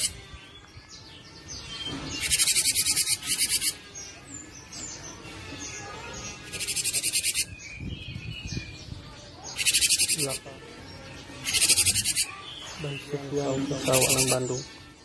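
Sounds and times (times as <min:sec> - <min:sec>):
bird song high repeated notes: 0:00.0 - 0:05.0, 0:06.2 - 0:08.4, 0:09.5 - 0:10.4, 0:11.4 - 0:14.7
soft whistled bird notes: 0:01.9 - 0:03.7, 0:09.5 - 0:10.4.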